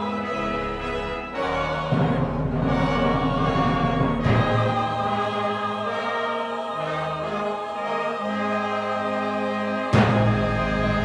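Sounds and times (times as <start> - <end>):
choir singing a hymn: 0.0 - 11.0.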